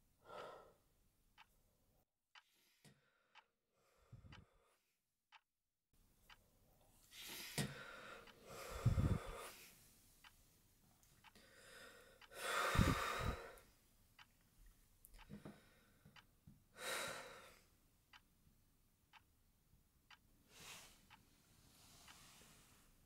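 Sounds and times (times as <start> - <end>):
clock ticking: 1.4 - 1.6, 3.3 - 3.6, 4.2 - 4.5, 6.2 - 6.6, 7.6 - 9.5, 10.2 - 10.4, 11.2 - 17.3, 18.1 - 18.4, 19.1 - 19.4, 20.0 - 20.4, 21.1 - 21.3.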